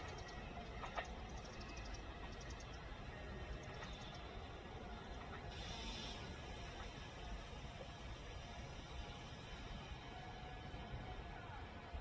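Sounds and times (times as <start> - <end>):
hiss: 5.5 - 10.6.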